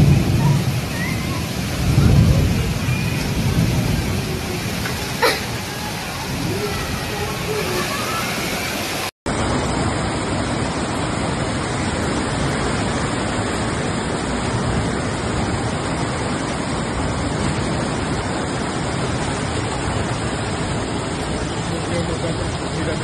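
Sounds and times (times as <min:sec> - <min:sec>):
floodwater rushing: 0:00.0 - 0:23.0.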